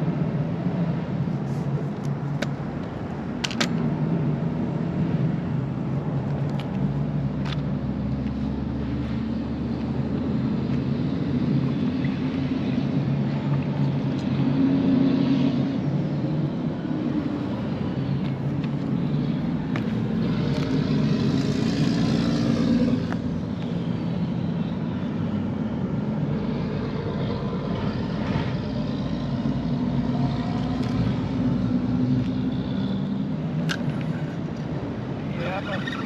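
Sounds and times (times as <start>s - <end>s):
passing traffic engine rumble: 0.0s - 36.0s.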